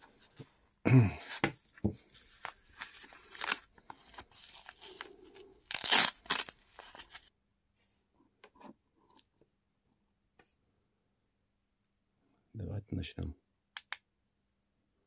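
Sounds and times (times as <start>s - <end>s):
hook-and-loop strap ripping: 5.7s - 7.2s.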